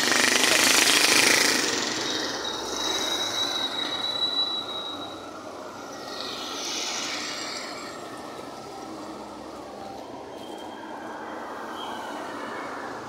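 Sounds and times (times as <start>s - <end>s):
cars and motorcycles driving past: 0.0s - 9.9s
high steady whine: 0.0s - 13.0s.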